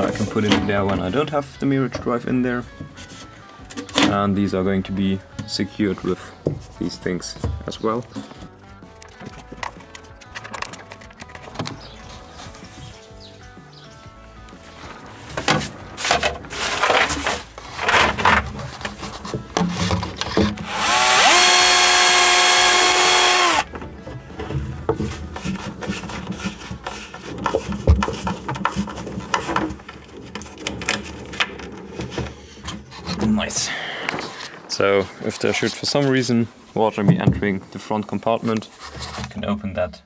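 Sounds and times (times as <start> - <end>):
electric drill whining: 20.6 - 23.7.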